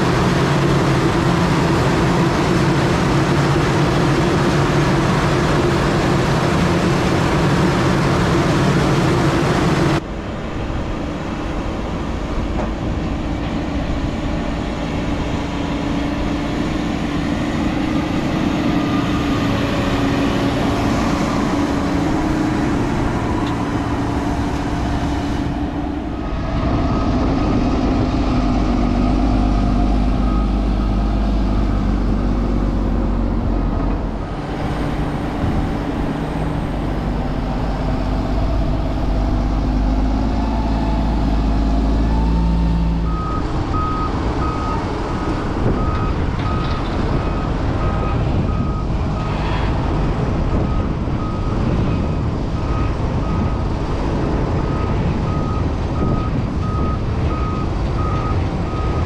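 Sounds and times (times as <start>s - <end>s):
tractor engines working under load: 0.0s - 59.0s
reversing alarm beeping: 40.3s - 49.4s, 54.7s - 59.0s.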